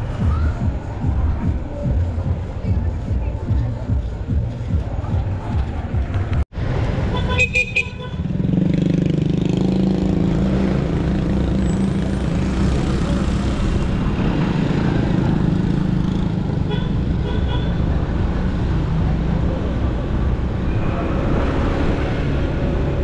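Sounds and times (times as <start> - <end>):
vehicle horn toots: 7.1 - 8.3.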